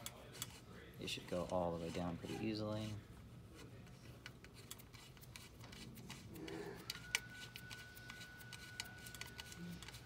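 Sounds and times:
metal ticks and rubbing: 0:04.2 - 0:10.0.

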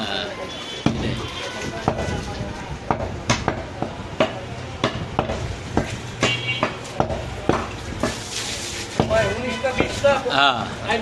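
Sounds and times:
cleaver chopping on wooden block: 0:00.8 - 0:01.2, 0:02.9 - 0:08.2.

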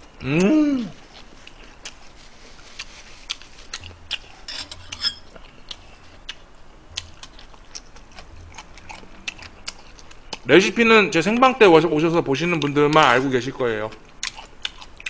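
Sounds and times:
man chewing food: 0:00.0 - 0:10.5, 0:13.9 - 0:15.0.

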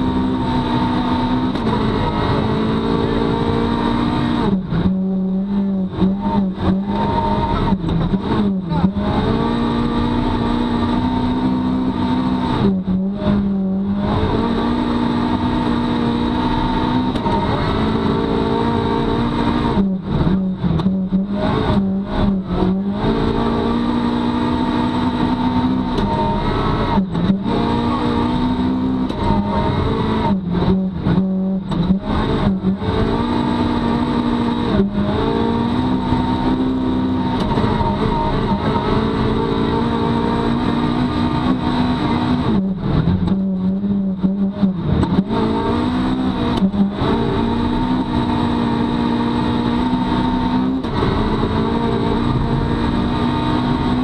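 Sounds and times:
rally car engine at high revs: 0:00.0 - 0:54.0.

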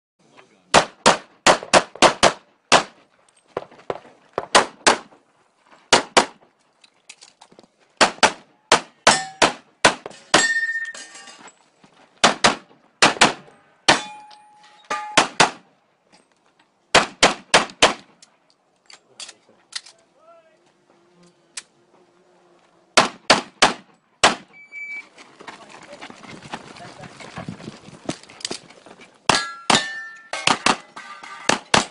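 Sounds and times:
pistol shots: 0:00.7 - 0:03.0, 0:12.2 - 0:14.2, 0:16.9 - 0:18.1, 0:23.0 - 0:24.5
metallic ringing tone: 0:10.4 - 0:11.3.

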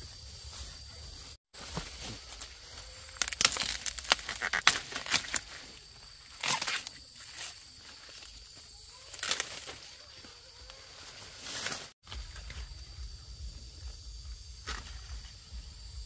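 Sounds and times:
dry plant material rustling: 0:00.7 - 0:12.5.

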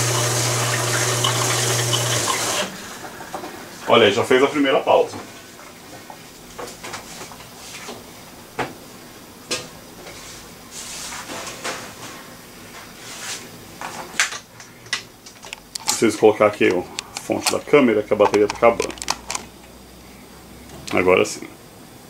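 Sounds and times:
faint steady hiss: 0:01.8 - 0:22.0
small objects clicking: 0:18.2 - 0:19.4.

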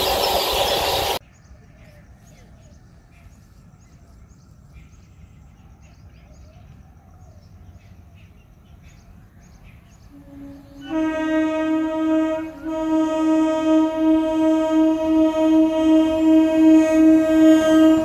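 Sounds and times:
train horn blast: 0:10.1 - 0:18.0.

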